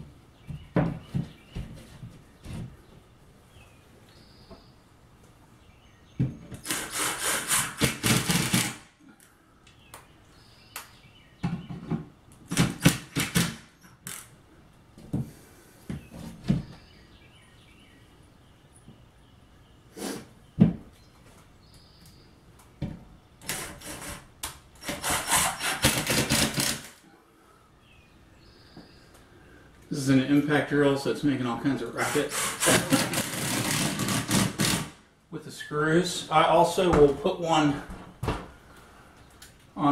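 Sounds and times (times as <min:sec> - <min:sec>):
impact driver hammering: 0:12.5 - 0:13.8, 0:32.5 - 0:35.0.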